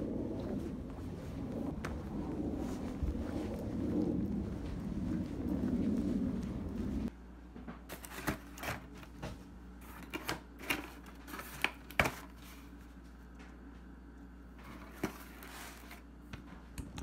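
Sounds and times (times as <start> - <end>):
low outdoor rumble: 0.0 - 10.0
faint steady hum: 0.0 - 17.0.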